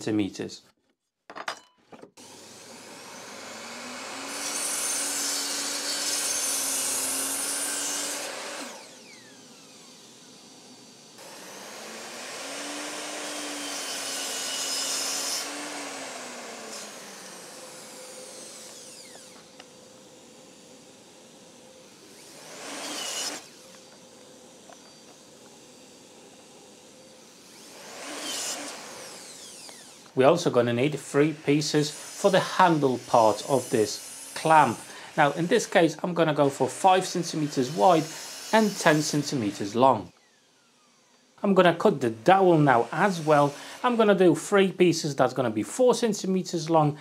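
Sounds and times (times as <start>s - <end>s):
saw blade cutting wood: 2.2s - 10.0s, 11.2s - 40.2s, 41.6s - 44.3s
mitre saw motor whine: 2.2s - 30.2s, 37.3s - 41.2s.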